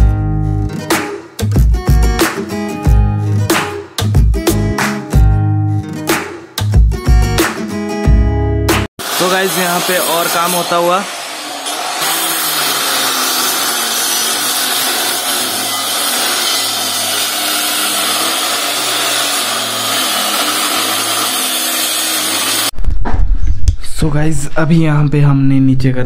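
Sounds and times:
power tool against brick wall: 9.0s - 22.7s.

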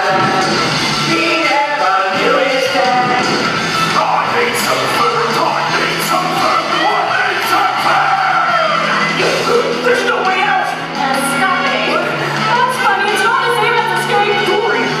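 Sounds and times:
loud backing music: 0.0s - 15.0s
performers singing: 0.0s - 15.0s
shouted lines: 6.4s - 10.8s.

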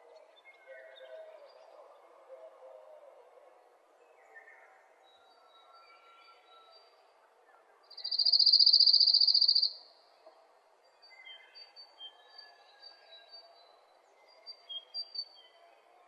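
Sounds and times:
faint bird chirps: 7.9s - 10.0s
insect trill: 8.0s - 9.8s.

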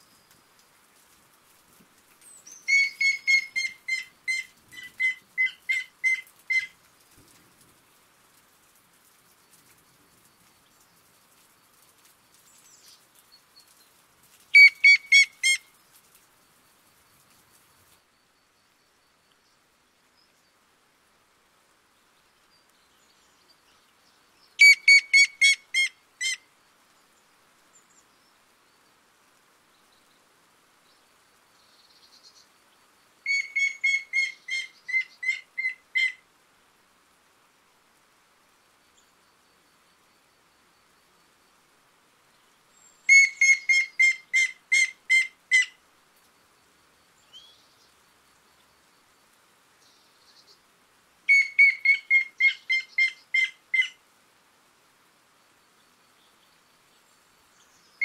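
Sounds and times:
woodpecker whistled notes: 2.6s - 6.7s, 14.6s - 15.6s, 24.6s - 25.9s, 33.3s - 36.1s, 43.1s - 45.7s, 51.3s - 53.5s.

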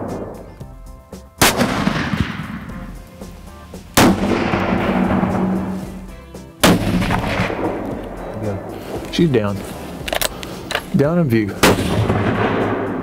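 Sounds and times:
rifle shots with rolling echo: 1.4s - 3.0s, 4.0s - 5.8s, 6.6s - 8.7s, 11.6s - 13.0s.

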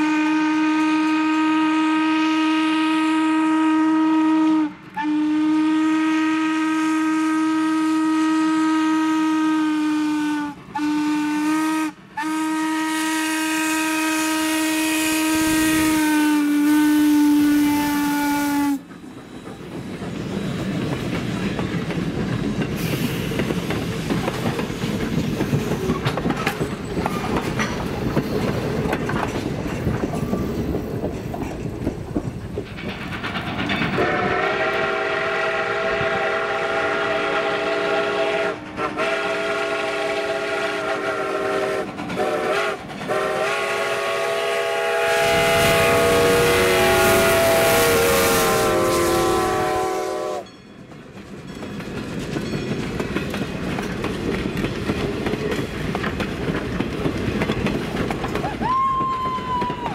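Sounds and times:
steam train chime whistle: 0.0s - 19.8s, 34.0s - 50.8s
steam train rumble and clatter: 0.0s - 59.9s.

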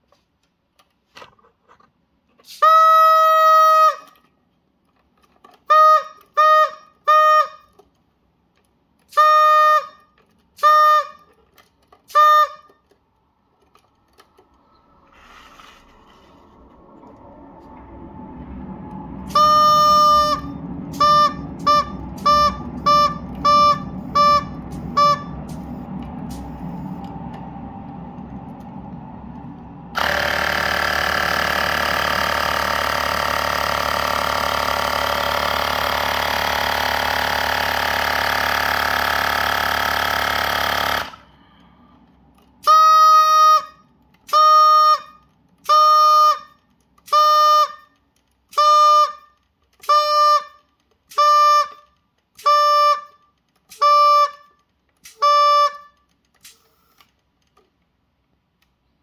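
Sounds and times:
rubber chicken whistle toots: 2.6s - 4.1s
loud rushing air: 14.8s - 31.8s.

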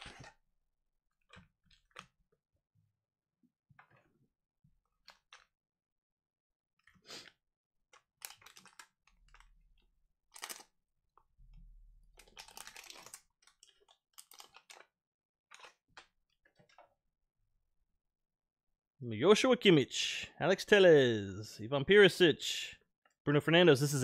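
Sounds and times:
foil wrapper tearing and crinkling: 10.3s - 10.6s, 12.2s - 14.8s.

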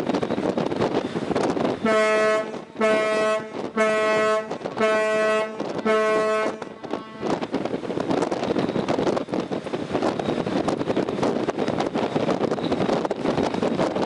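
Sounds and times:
wind noise on microphone: 0.0s - 14.0s
ship's horn blasts: 1.6s - 7.8s.

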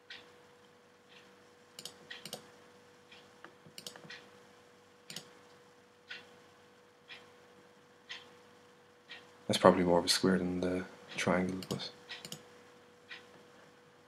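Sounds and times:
faint steady hum: 0.0s - 14.0s
computer mouse clicks: 1.8s - 2.5s, 3.1s - 4.2s, 5.1s - 5.3s, 11.5s - 12.4s.

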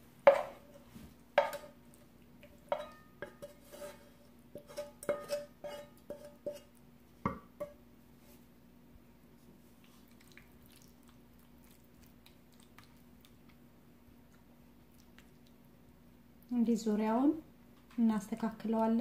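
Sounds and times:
utensil clinking against cookware: 2.7s - 4.0s, 4.6s - 6.7s.

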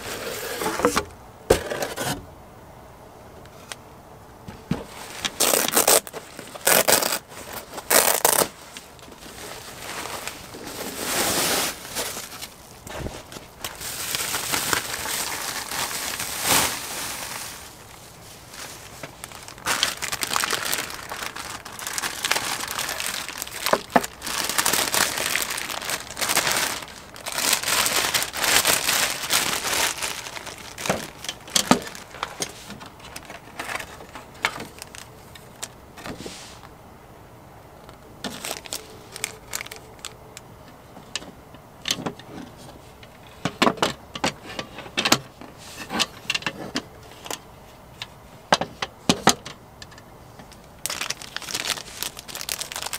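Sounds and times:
plastic packaging crinkling: 4.9s - 35.8s, 38.2s - 40.5s, 50.4s - 52.9s.

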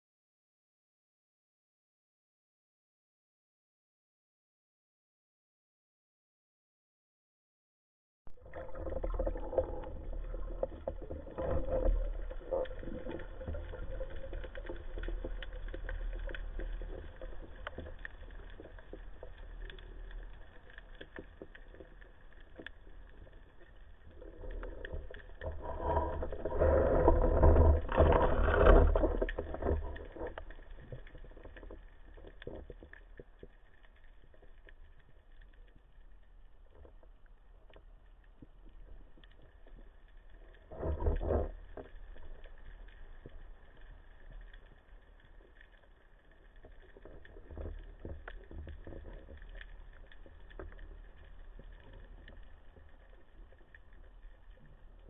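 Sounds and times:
underwater low rumble: 8.3s - 55.0s
underwater clicks: 8.4s - 35.7s.

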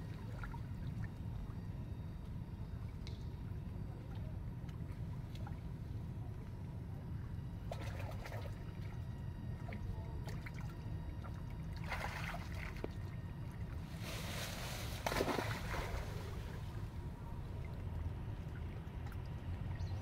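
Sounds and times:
water splashing and sloshing: 0.0s - 1.6s, 7.6s - 20.0s
steady low rumble: 0.0s - 20.0s.

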